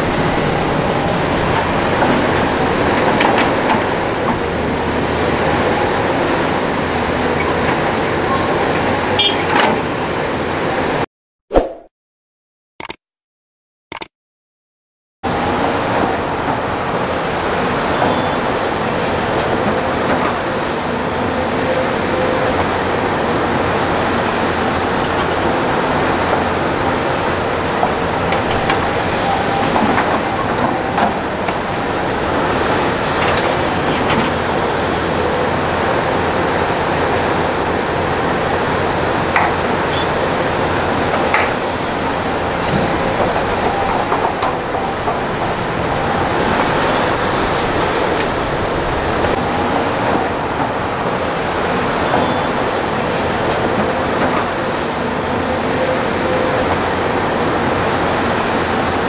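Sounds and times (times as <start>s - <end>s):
excavator diesel engines and hydraulics: 0.0s - 11.0s, 15.3s - 59.0s.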